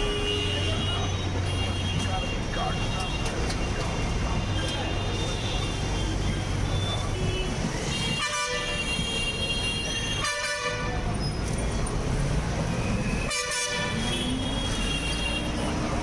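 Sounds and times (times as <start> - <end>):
vehicle horns honking: 0.0 - 3.3, 6.8 - 11.1, 13.1 - 15.8
traffic noise: 0.0 - 16.0.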